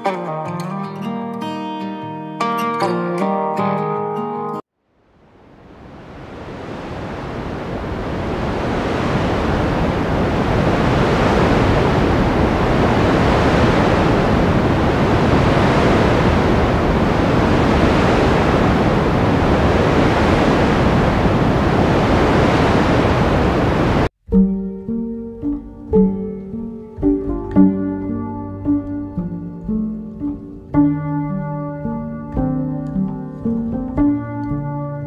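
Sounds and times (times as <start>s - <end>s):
sea waves washing on shore: 5.0s - 24.1s.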